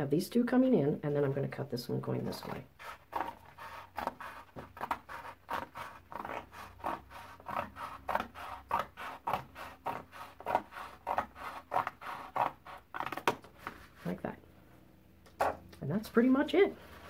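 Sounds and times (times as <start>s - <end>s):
scissors cutting heavy paper: 2.3s - 13.8s.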